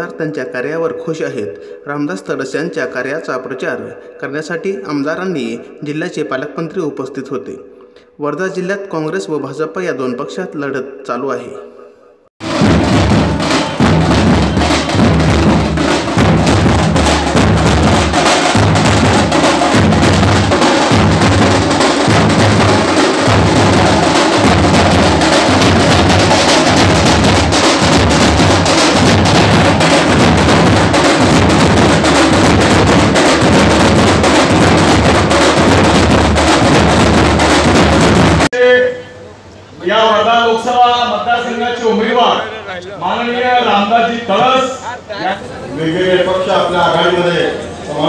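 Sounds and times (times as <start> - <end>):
drummers beating large drums: 12.4 - 38.5.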